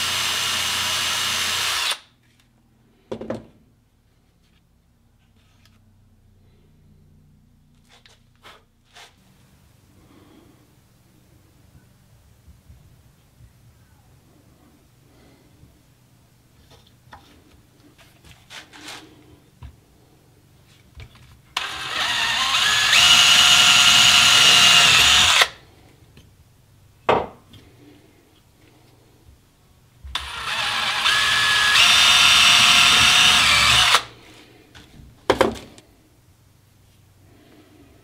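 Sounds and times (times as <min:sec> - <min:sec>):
power drill boring wood: 0:00.0 - 0:02.1, 0:21.6 - 0:25.6, 0:30.1 - 0:34.1.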